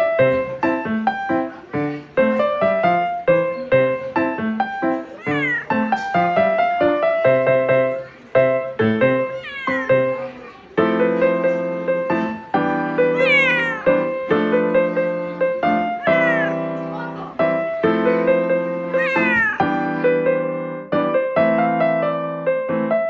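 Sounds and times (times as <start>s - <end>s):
piano music: 0.0s - 23.0s
cat meowing: 5.0s - 6.5s, 9.1s - 10.6s, 13.0s - 14.2s, 15.7s - 16.8s, 18.9s - 19.8s.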